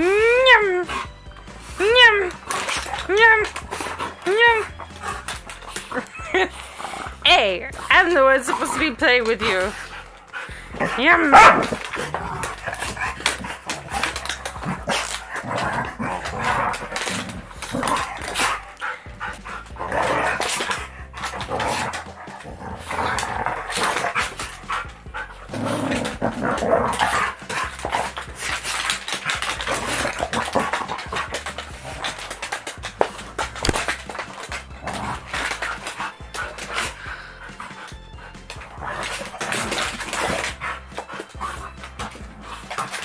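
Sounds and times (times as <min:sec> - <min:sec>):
dogs barking and growling: 0:00.0 - 0:43.0
scuffling and paw clicks: 0:00.6 - 0:43.0.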